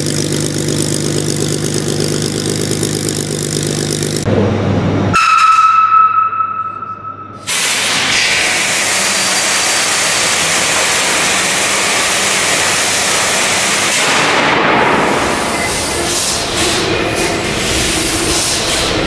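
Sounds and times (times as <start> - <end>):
loud rushing hiss: 7.5 - 19.0.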